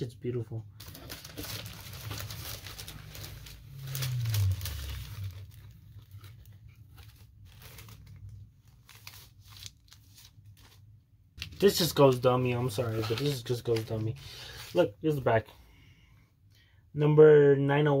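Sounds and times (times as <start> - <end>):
paper sleeve rustling: 0.8 - 15.2
low hum falling in pitch: 3.5 - 5.8.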